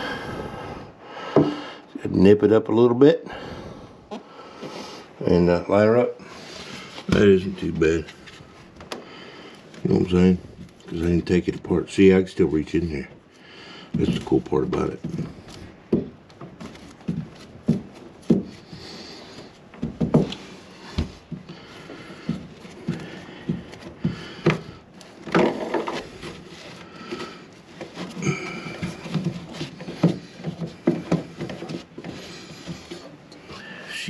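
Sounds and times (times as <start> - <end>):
plastic pipe knocks and scraping: 1.3 - 1.6, 13.9 - 33.2.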